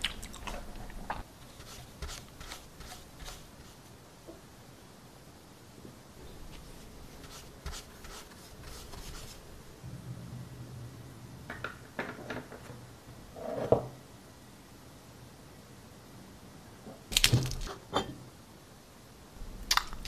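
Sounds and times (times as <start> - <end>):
makeup brush strokes: 1.3 - 3.9, 6.4 - 9.6.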